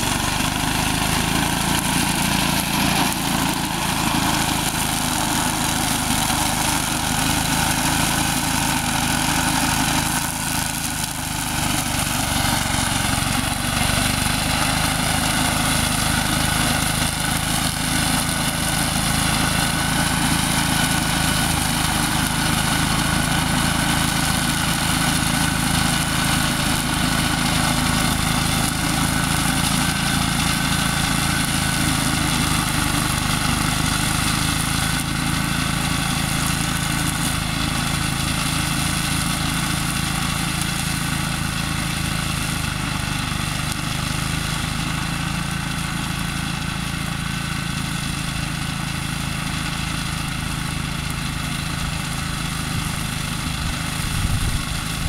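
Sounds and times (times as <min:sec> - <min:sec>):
weed mower engine running: 0:00.0 - 0:55.0.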